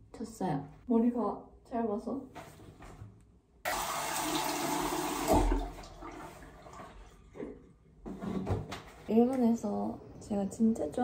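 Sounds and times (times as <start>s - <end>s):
water running from a tap: 3.7s - 6.4s.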